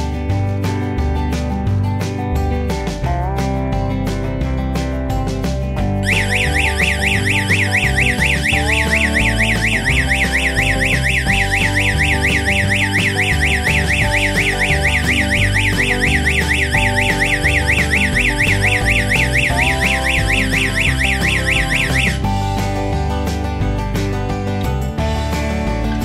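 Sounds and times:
electronic alarm siren warbling: 6.0 - 22.3.

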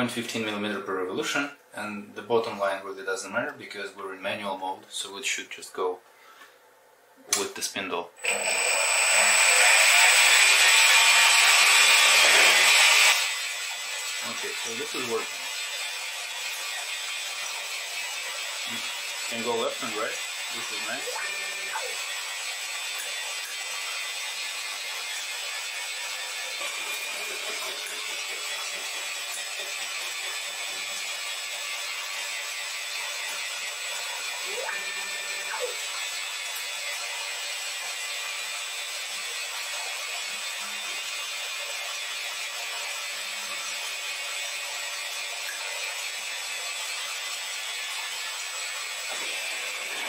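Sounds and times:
stepper motor whine: 8.2 - 13.3, 20.9 - 22.7, 34.5 - 36.1
metal lathe running: 8.2 - 13.5, 16.8 - 33.0, 33.7 - 39.3.

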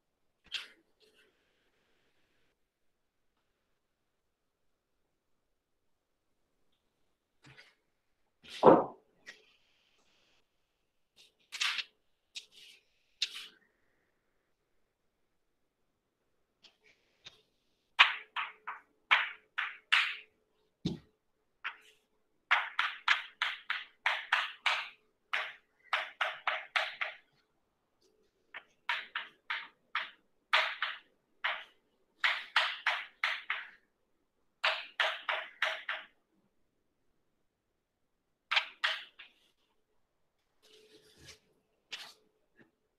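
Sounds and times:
chalk tapping and scraping: 11.2 - 13.7, 21.6 - 27.4, 28.5 - 33.8, 40.6 - 42.2.

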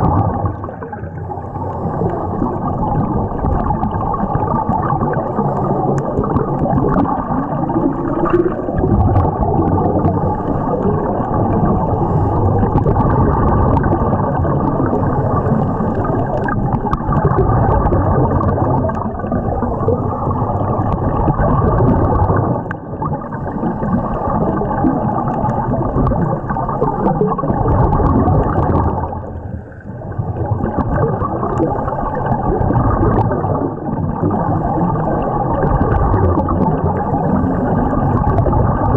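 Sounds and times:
scuba exhale bubbles: 0.0 - 38.9
underwater rumbling wash: 0.0 - 38.9.

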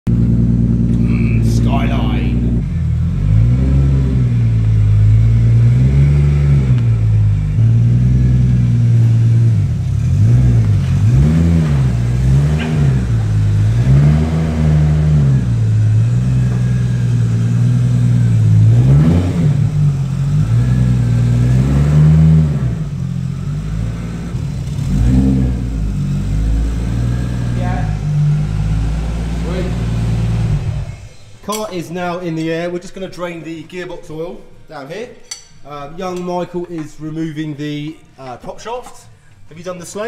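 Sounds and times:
car engine idling and revving: 0.0 - 31.3.

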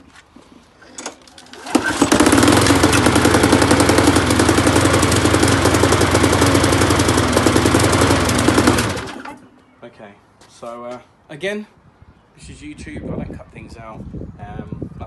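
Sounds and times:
lawnmower engine running: 0.8 - 9.4.

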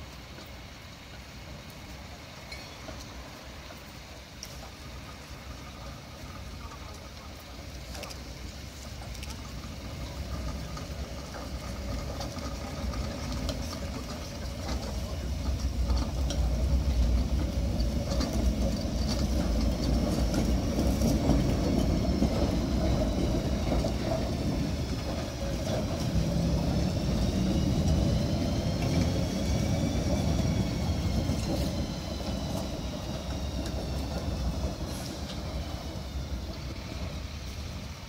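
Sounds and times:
tram rumbling over track: 0.0 - 38.0
wheel squeal: 9.3 - 38.0.

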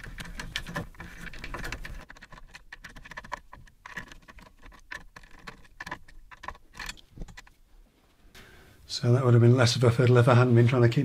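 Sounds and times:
screwdriver turning a bolt: 0.0 - 7.5
fingers fiddling with small parts: 0.0 - 7.6.

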